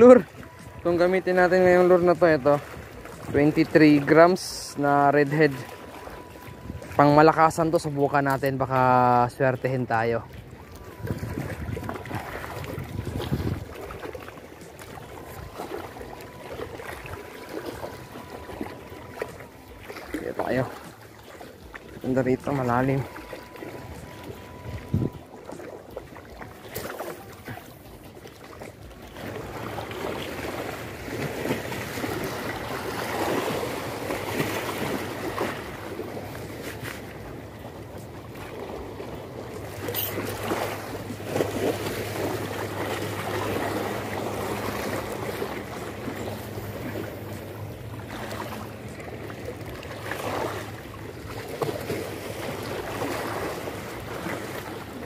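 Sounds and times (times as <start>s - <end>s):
choppy seawater: 0.0s - 55.0s
small waves lapping: 0.0s - 55.0s
wind buffeting microphone: 10.8s - 14.0s, 23.9s - 25.3s.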